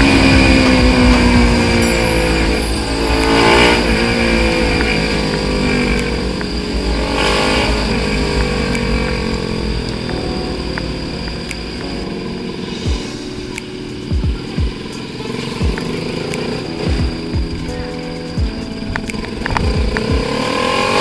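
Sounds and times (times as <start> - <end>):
motorcycle engine running: 0.0 - 2.4.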